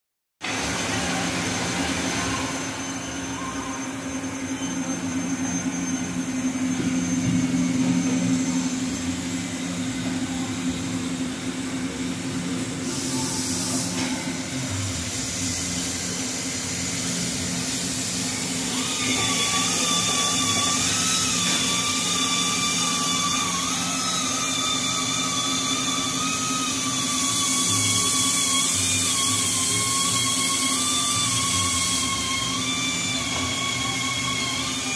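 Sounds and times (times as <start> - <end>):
high machine whine: 0.4 - 34.9
machine hum with hiss: 0.4 - 34.9.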